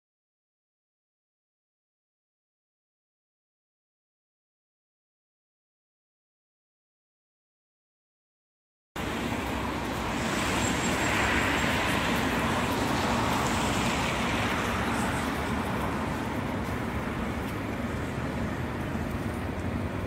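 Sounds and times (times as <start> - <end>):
vehicle passing: 9.0 - 20.0.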